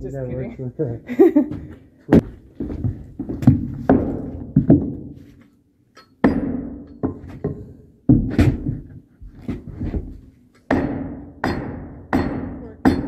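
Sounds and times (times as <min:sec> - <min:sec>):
hammer striking wooden block: 0:06.0 - 0:08.5, 0:10.7 - 0:13.0.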